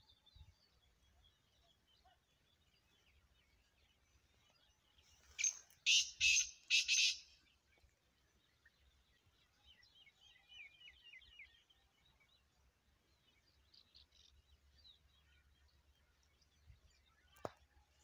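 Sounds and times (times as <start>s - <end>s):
faint bird chirping: 0.0s - 18.0s
bird calling harsh notes: 5.4s - 7.3s.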